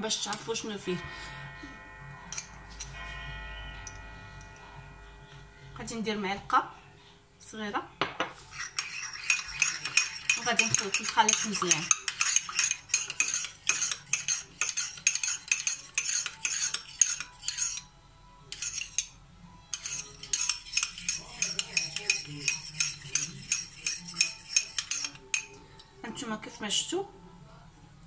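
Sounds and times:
teaspoon stirring in glass jar: 0:08.4 - 0:17.9, 0:18.5 - 0:25.6.

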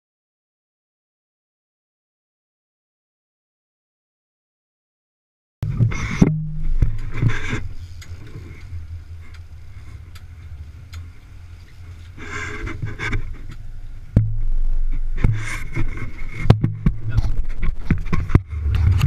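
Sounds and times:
sharp knocks: 0:05.6 - 0:07.4, 0:14.2 - 0:18.5
boat engines droning: 0:05.6 - 0:19.0.

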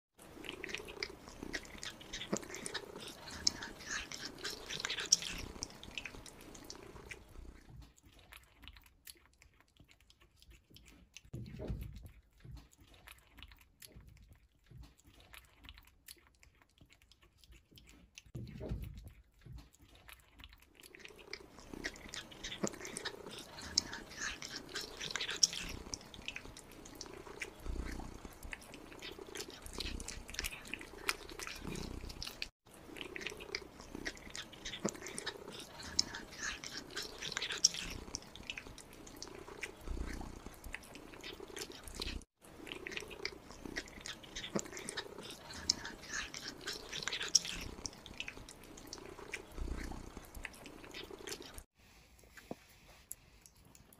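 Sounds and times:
kittens chewing wet food: 0:00.2 - 0:53.9
low purring: 0:00.3 - 0:07.7, 0:21.0 - 0:51.7.

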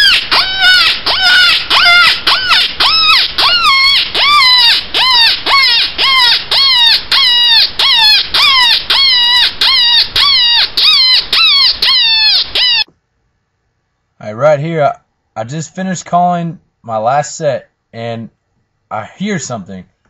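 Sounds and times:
rabbit distress call cries: 0:00.0 - 0:12.9.

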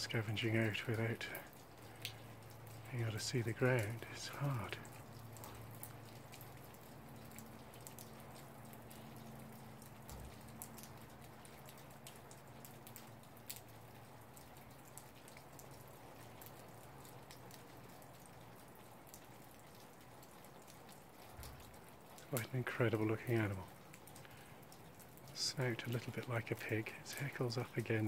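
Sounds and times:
soft ticks: 0:00.8 - 0:22.5.

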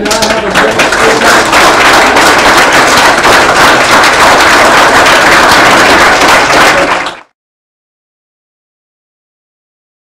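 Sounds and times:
audience applauding: 0:00.0 - 0:07.4.

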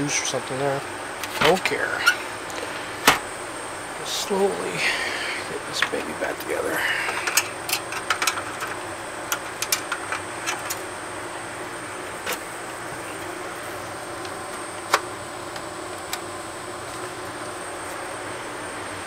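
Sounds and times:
steady background hiss: 0:00.0 - 0:19.0
plastic parts clicking and tapping: 0:07.2 - 0:10.8.

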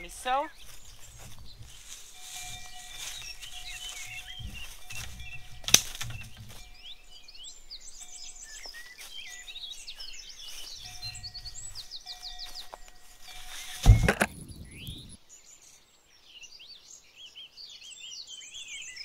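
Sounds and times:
songbirds chirping and trilling: 0:00.0 - 0:19.0
sharp knock: 0:13.8 - 0:15.2.

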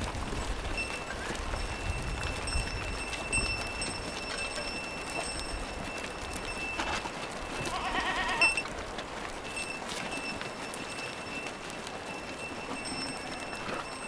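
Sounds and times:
hooves on rock and gravel: 0:00.0 - 0:14.0
sheep bleating: 0:07.6 - 0:08.6.

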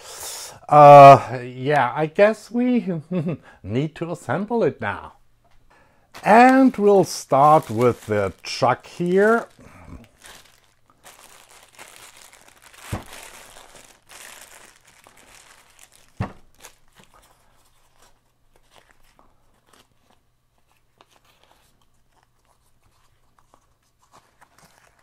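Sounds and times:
plastic bag crinkling: 0:06.1 - 0:20.0
wrapping paper crinkling and tearing: 0:06.1 - 0:25.0.

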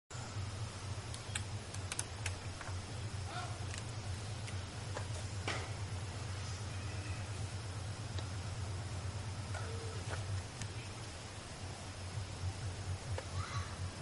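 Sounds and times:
steady low hum: 0:00.1 - 0:14.0
sharp ticks and clicks: 0:01.0 - 0:02.9, 0:03.6 - 0:05.1, 0:08.1 - 0:08.4.

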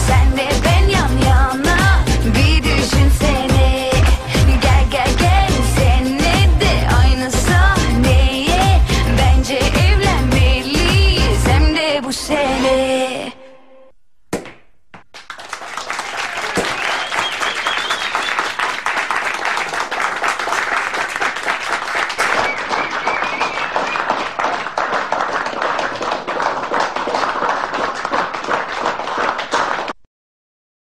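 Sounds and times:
crowd applause: 0:15.2 - 0:30.0.

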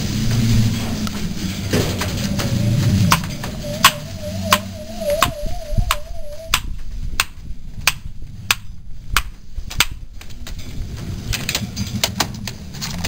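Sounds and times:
wavering high tone: 0:01.4 - 0:06.9
pigeons cooing: 0:01.7 - 0:06.6.

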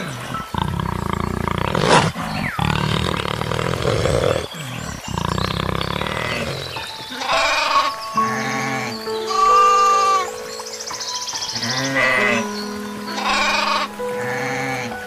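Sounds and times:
leopards growling and snarling: 0:00.0 - 0:09.0.

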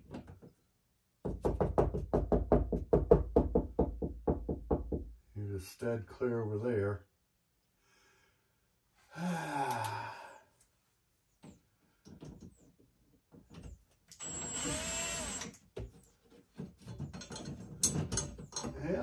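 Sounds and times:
knocks and clicks against wall: 0:01.2 - 0:05.1, 0:15.4 - 0:18.8
man groaning with effort: 0:09.1 - 0:10.4
cordless drill whining: 0:14.2 - 0:15.6.

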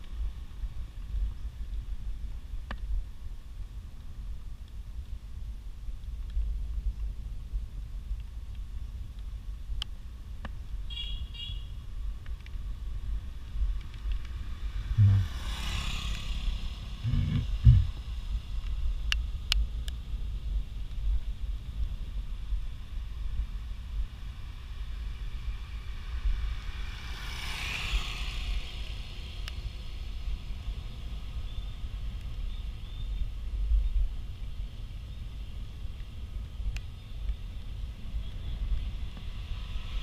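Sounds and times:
wind and road rumble: 0:00.0 - 0:40.0
vehicle passing: 0:14.4 - 0:18.1, 0:25.9 - 0:30.6
low thumps: 0:15.0 - 0:15.3, 0:17.0 - 0:17.9.

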